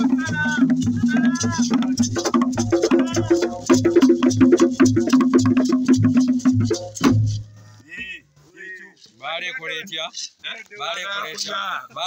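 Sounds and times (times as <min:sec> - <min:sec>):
gourd shakers rattling: 0:00.0 - 0:07.8
cowhide drums beating: 0:00.0 - 0:08.4.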